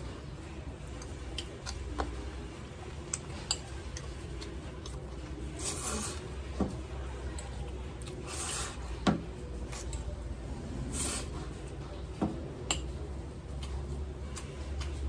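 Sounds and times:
slurping noodles: 0:05.5 - 0:06.3.

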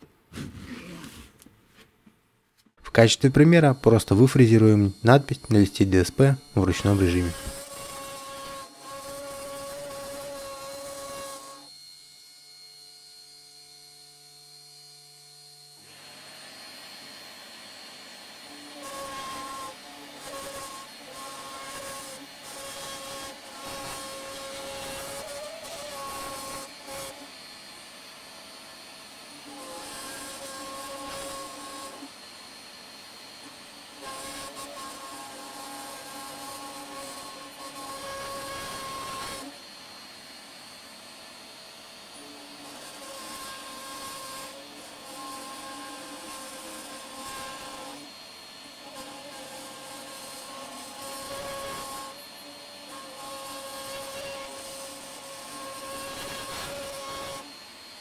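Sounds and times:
small electric motor whine: 0:03.4 - 0:58.0
router bit grinding into board: 0:03.6 - 0:11.7, 0:18.4 - 0:27.4, 0:33.3 - 0:39.6, 0:42.1 - 0:57.6.

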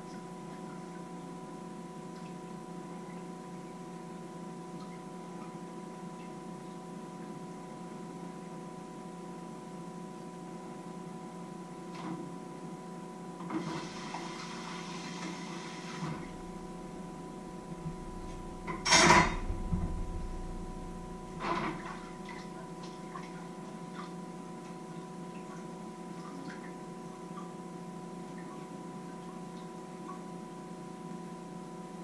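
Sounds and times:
electrical hum: 0:00.0 - 0:32.0
dishes clattering: 0:18.7 - 0:20.0.

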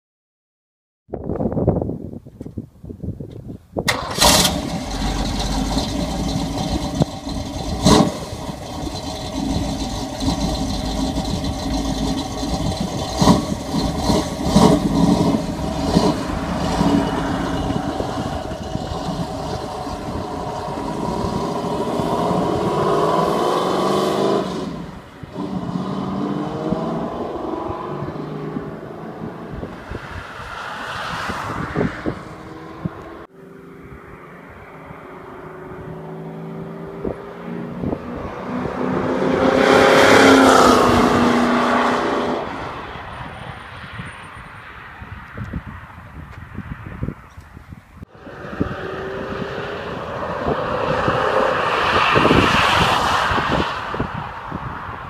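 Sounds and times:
engine revving with throttle blips: 0:03.9 - 0:29.3
car engine starting: 0:03.9 - 0:29.6.

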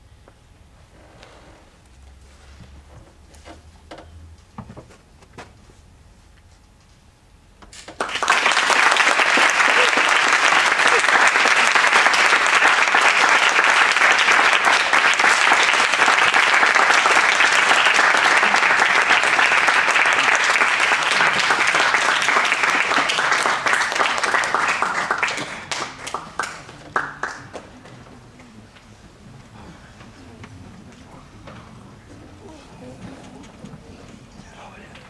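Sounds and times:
audience applauding: 0:07.9 - 0:28.2.

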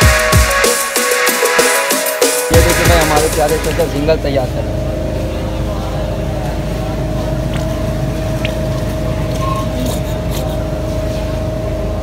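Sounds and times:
mechanical hum with whine: 0:02.5 - 0:12.0.

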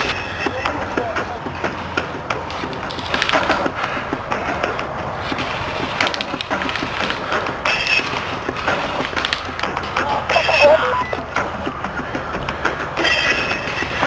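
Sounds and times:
high whistle-like tone: 0:10.4 - 0:11.2.

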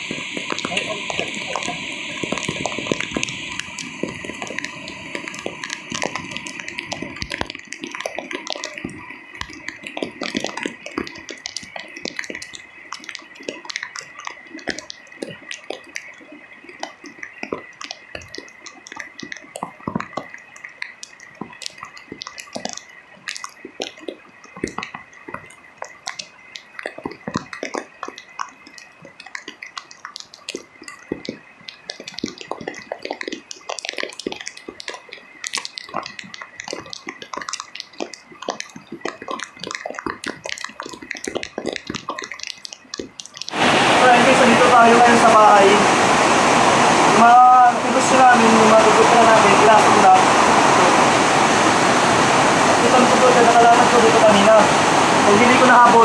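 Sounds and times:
rain dripping and tapping: 0:00.0 - 0:56.0.

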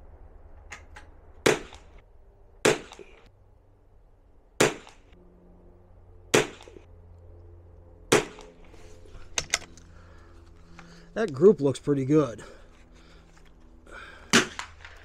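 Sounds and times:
rifle shots with echo: 0:08.1 - 0:08.6.

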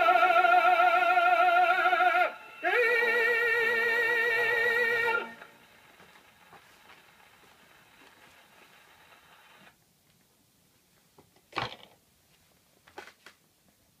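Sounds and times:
record needle hiss and crackle: 0:00.0 - 0:14.0.

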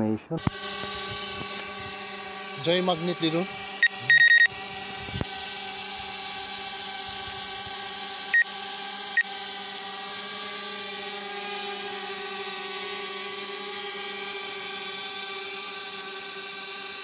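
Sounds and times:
steady mechanical hum: 0:00.0 - 0:17.0
high electronic beeps: 0:03.8 - 0:04.5.

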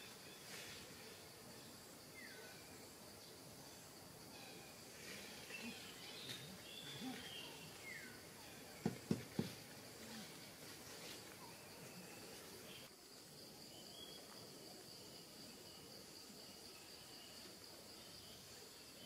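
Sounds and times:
faint bird chirps: 0:00.0 - 0:08.9.

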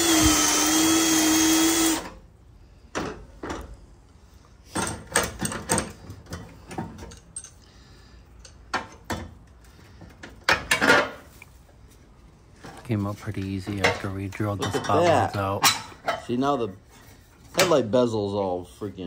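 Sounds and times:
light metal clinks and knocks: 0:04.7 - 0:07.6.

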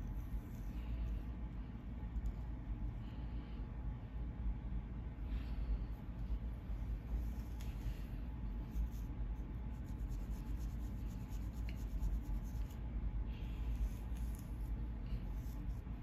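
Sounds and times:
steady low hum: 0:00.0 - 0:16.0
comb scratching scalp: 0:08.5 - 0:12.9, 0:13.6 - 0:16.0.

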